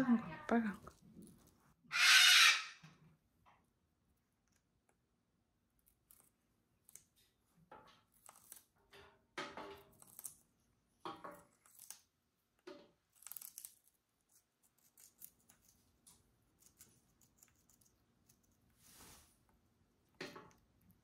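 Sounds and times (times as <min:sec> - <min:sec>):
parrot crunching watermelon: 0:05.6 - 0:19.2.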